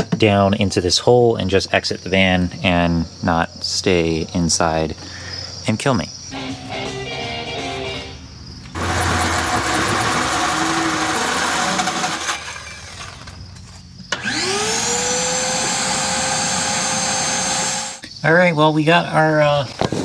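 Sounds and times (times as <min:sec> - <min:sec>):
drill whining: 0:08.7 - 0:13.3, 0:14.1 - 0:18.0
power drill cutting through floor: 0:08.8 - 0:13.3, 0:14.1 - 0:18.0.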